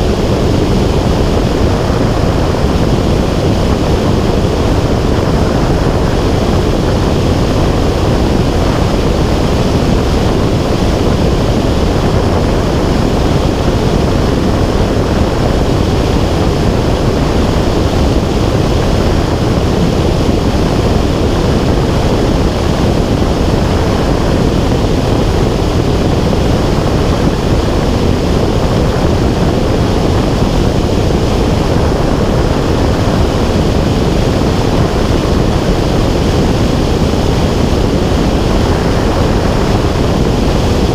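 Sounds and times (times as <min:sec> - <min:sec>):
wind rushing over microphone: 0:00.0 - 0:40.9.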